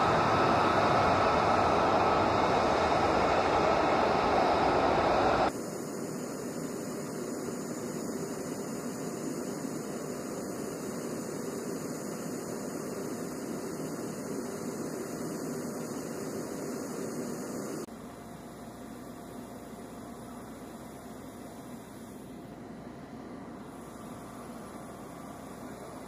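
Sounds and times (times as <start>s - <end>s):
machinery hum and hiss: 0.0s - 26.0s.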